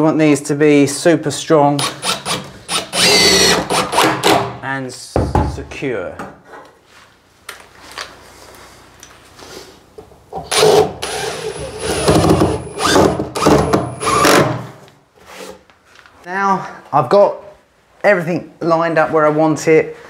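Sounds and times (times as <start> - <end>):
cordless drill driving screws: 1.8 - 4.2, 10.5 - 14.5.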